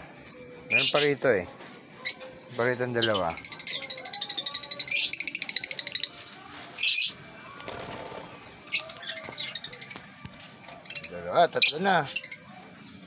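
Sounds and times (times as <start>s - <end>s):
lovebirds chirping: 0.0s - 1.4s, 2.0s - 7.3s, 8.6s - 12.6s.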